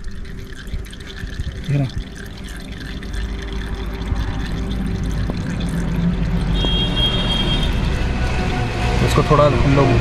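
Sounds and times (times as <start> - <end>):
oil pouring into a pan: 0.0 - 8.6.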